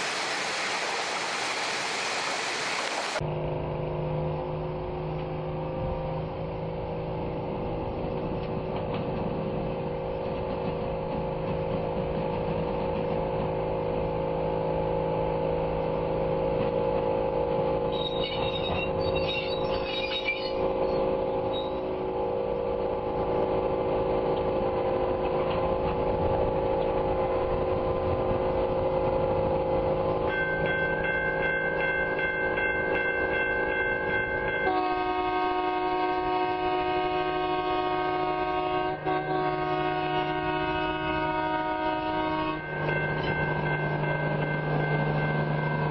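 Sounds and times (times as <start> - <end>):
crane engine droning: 18.9 - 45.9.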